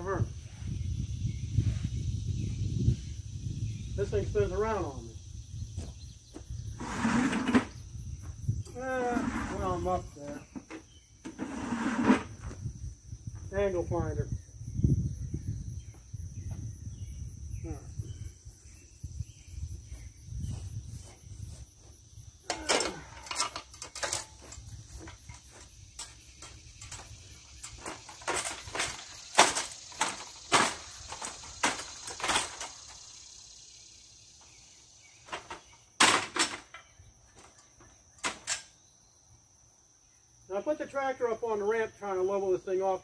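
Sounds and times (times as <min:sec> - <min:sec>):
metal ladder knocks and rattles: 0:22.5 - 0:32.8.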